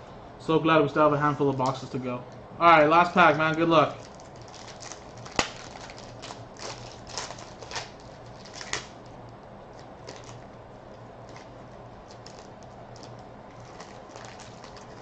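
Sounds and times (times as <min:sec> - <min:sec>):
foil wrapper crinkling: 0:03.2 - 0:10.6, 0:11.2 - 0:15.0.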